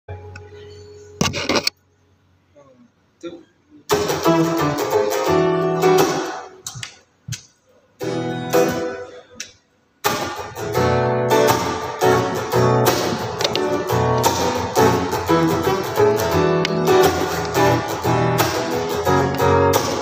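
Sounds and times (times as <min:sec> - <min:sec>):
acoustic guitar picking: 0:03.9 - 0:06.6, 0:08.0 - 0:09.4, 0:10.0 - 0:20.0.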